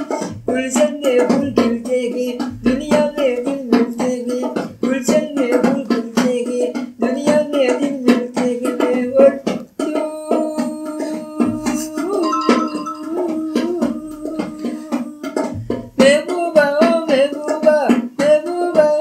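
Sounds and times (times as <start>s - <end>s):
person singing: 0.0s - 19.0s
strummed plucked strings: 12.1s - 14.7s.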